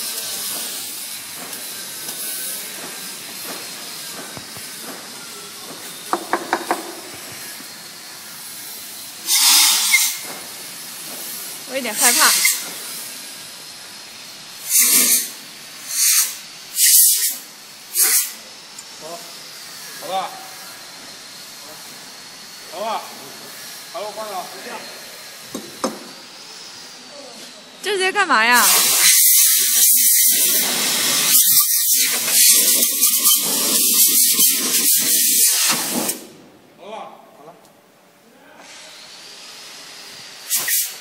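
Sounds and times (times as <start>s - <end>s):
compressed air blasts hissing: 0.0s - 13.6s, 14.5s - 18.5s, 28.6s - 36.4s, 40.0s - 41.0s.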